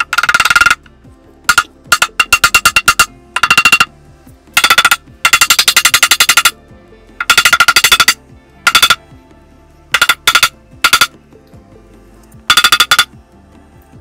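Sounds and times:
rubber hammer beating steel plate: 0.0s - 0.9s, 1.5s - 3.9s, 4.6s - 6.6s, 7.2s - 9.0s, 10.0s - 11.2s, 12.5s - 13.2s.

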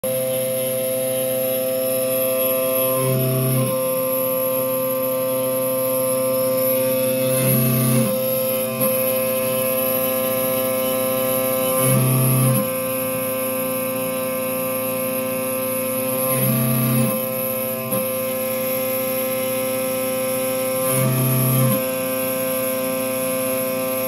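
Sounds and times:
milling machine motors whining: 0.0s - 24.0s.

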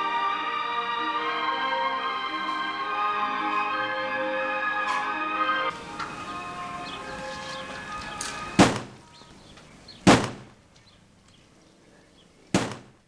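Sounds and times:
soundtrack music: 0.0s - 8.6s
gunshots: 8.5s - 9.0s, 10.0s - 10.6s, 12.5s - 13.0s.

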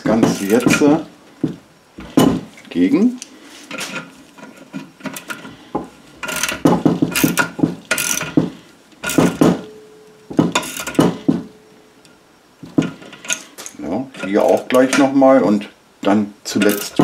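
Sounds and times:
socket ratchet clicking: 6.2s - 8.4s, 9.0s - 9.4s.

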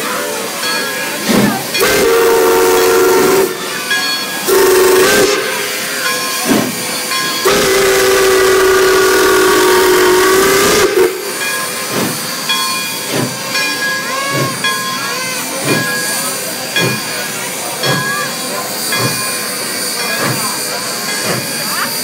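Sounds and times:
steam hiss: 0.0s - 22.0s
locomotive exhaust chuffs: 1.0s - 22.0s
steam whistle blasts: 1.7s - 6.0s, 7.4s - 11.5s.

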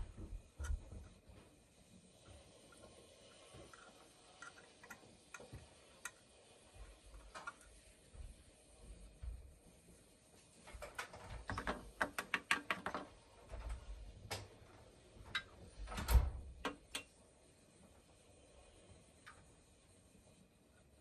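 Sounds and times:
small plastic clicks and taps: 10.8s - 13.1s.

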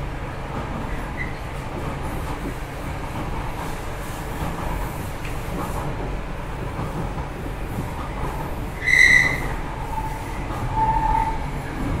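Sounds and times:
train rumbling: 0.0s - 12.0s
wheels squealing: 8.8s - 11.6s.

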